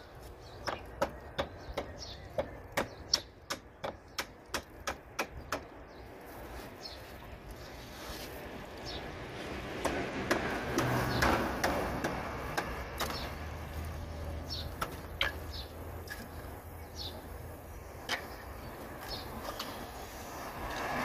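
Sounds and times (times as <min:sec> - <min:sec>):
hands scraping sand: 0:06.1 - 0:08.7.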